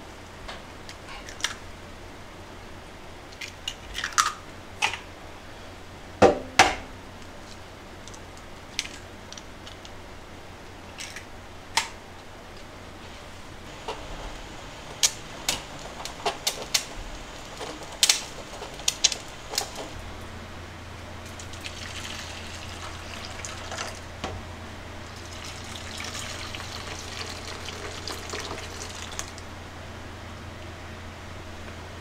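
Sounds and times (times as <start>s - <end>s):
water pouring into metal cups: 21.2s - 24.1s, 25.0s - 29.4s.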